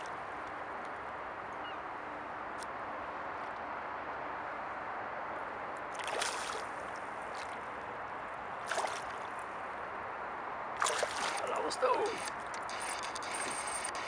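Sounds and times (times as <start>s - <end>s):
fish splashing in water: 5.9s - 7.6s, 8.6s - 9.3s, 10.8s - 11.6s.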